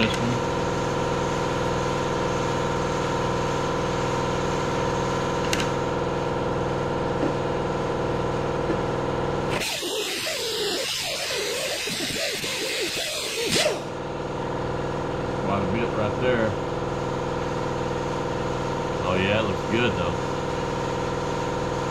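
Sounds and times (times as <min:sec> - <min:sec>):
air compressor motor running: 0:00.0 - 0:21.9
air sander grinding metal: 0:09.5 - 0:14.0.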